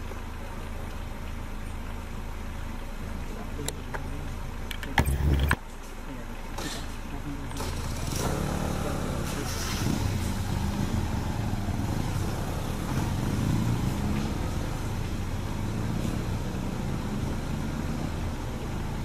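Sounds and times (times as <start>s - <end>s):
vehicle engine running at low revs: 7.5s - 19.0s.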